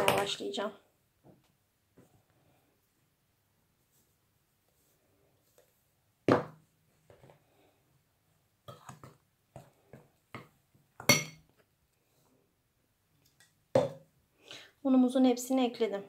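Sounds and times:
spoon clinking glass bowl: 11.0s - 11.4s.

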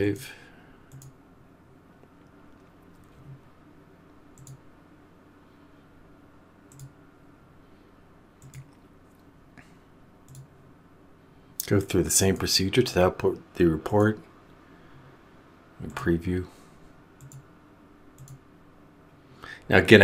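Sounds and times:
low room hum: 0.0s - 20.0s
computer mouse clicks: 0.9s - 1.2s, 4.3s - 4.6s, 6.7s - 7.0s, 8.4s - 9.2s, 10.2s - 10.5s, 17.2s - 17.5s, 18.1s - 18.4s.

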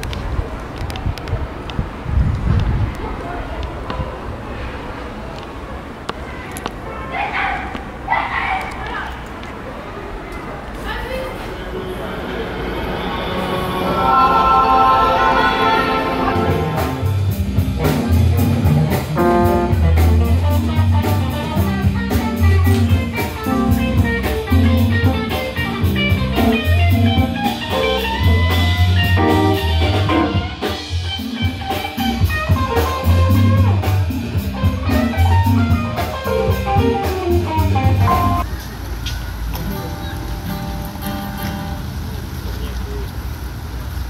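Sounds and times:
electric guitars: 13.0s - 38.4s
drum kit beat: 14.6s - 38.4s
bass guitar: 15.8s - 38.4s.

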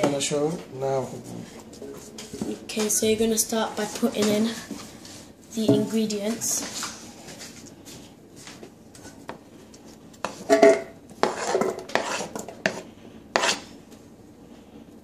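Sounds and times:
knife scraping on chopping board: 10.2s - 13.7s.

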